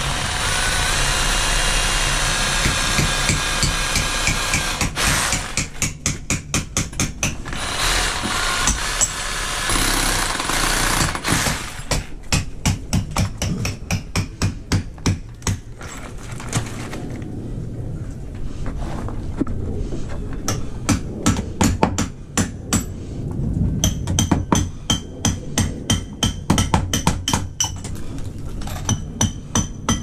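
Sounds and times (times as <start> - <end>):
cordless drill running: 0.0 - 5.6, 7.5 - 11.8
sharp evenly spaced knocks: 2.5 - 15.7, 20.5 - 23.0, 23.8 - 28.0, 28.8 - 30.0.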